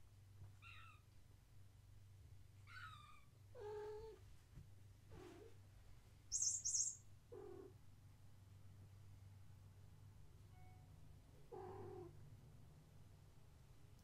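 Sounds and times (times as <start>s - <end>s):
very high squeaks: 6.3s - 7.0s.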